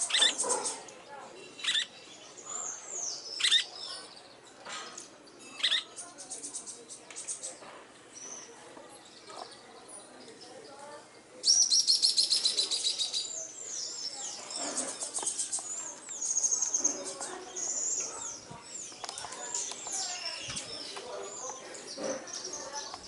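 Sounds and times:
birds chirping and whistling: 0:00.0 - 0:00.9, 0:01.6 - 0:04.2, 0:11.4 - 0:23.0.

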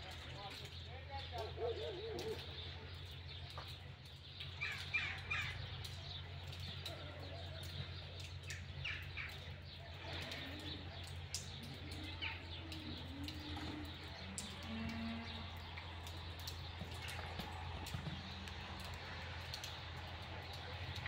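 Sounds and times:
birds chirping: 0:00.0 - 0:21.0.

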